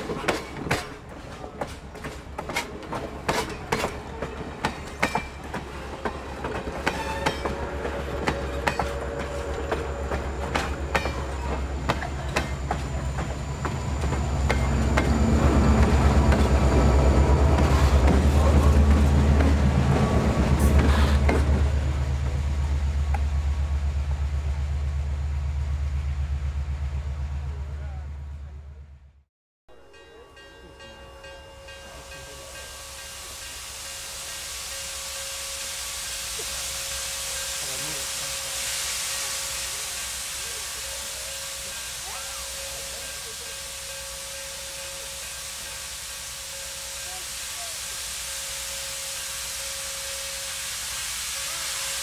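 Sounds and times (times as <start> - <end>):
train wheels clicking over rails: 0.0 - 22.4
diesel engine rumble: 8.4 - 29.2.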